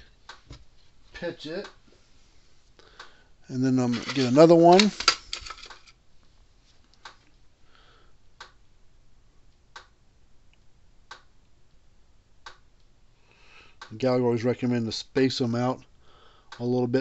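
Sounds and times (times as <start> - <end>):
soft rustle of small part: 3.6 - 7.5
faint sharp clicks: 9.5 - 11.6.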